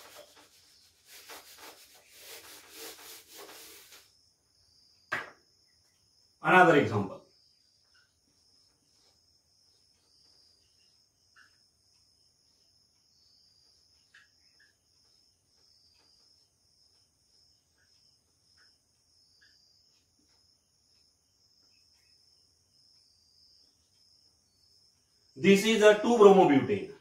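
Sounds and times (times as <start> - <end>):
marker squeaking on whiteboard: 0.0 - 4.2
crickets chirring: 0.0 - 27.0.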